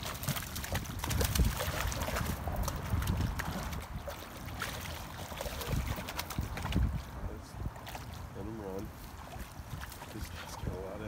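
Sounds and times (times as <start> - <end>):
fish thrashing and splashing: 0.0 - 7.1.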